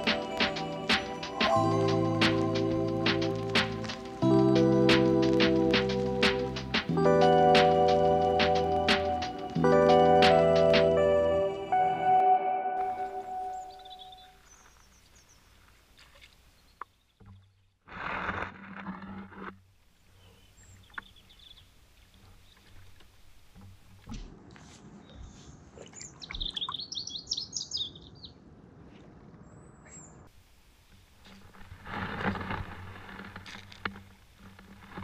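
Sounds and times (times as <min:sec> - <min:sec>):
songbird twittering: 0:13.0 - 0:15.5, 0:20.1 - 0:21.7, 0:25.9 - 0:28.4
loud scraping noise: 0:17.9 - 0:19.6, 0:31.6 - 0:33.5.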